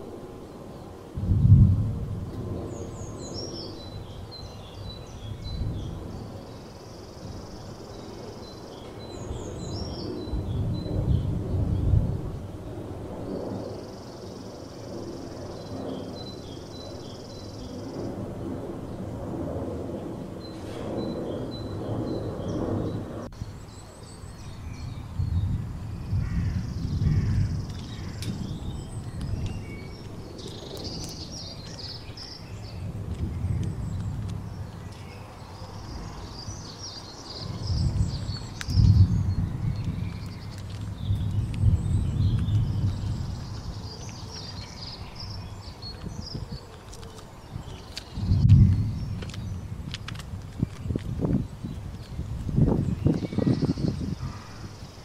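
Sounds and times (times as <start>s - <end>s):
songbirds singing: 0.0s - 19.1s, 19.9s - 55.0s
low rumble: 1.2s - 4.3s, 37.3s - 46.4s, 48.1s - 54.6s
birds chirping and trilling: 2.6s - 12.0s, 13.2s - 18.2s, 20.0s - 55.0s.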